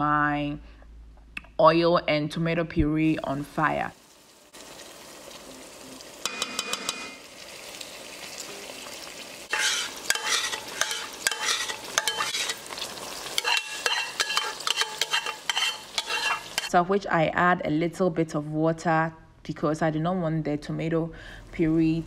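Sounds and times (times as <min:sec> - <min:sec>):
onions sizzling in hot oil: 0:03.5 - 0:16.7
wooden spoon scraping a pot: 0:09.5 - 0:16.7.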